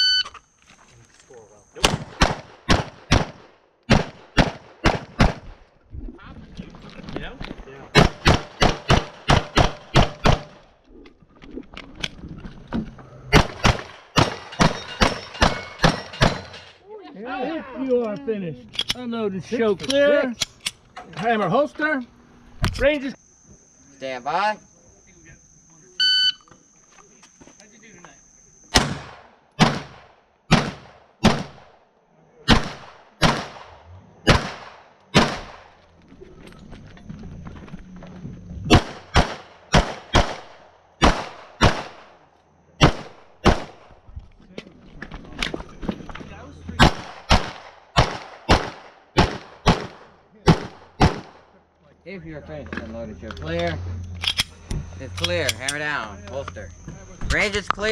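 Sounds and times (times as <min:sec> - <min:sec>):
pistol shots: 0:01.8 - 0:05.6, 0:08.0 - 0:10.6, 0:13.3 - 0:16.6, 0:28.7 - 0:31.8, 0:32.5 - 0:35.8, 0:38.7 - 0:42.2, 0:42.8 - 0:43.9, 0:46.8 - 0:51.5.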